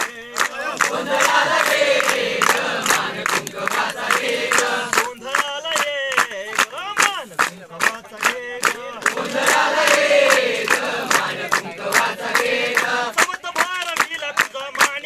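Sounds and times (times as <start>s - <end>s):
group of people singing: 0.0s - 5.3s, 7.6s - 13.3s
hands clapping in time: 0.0s - 15.0s.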